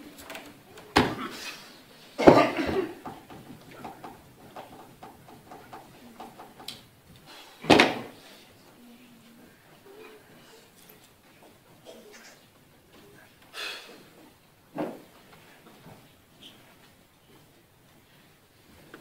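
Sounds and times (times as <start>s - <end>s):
person coughing: 2.2s - 3.0s
faint knocks and rustles: 2.2s - 19.0s.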